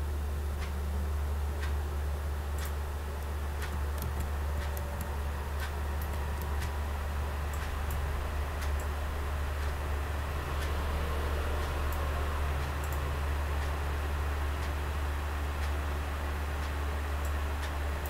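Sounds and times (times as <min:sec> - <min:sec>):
steady low hum: 0:00.0 - 0:18.0
computer mouse clicks: 0:03.6 - 0:06.8.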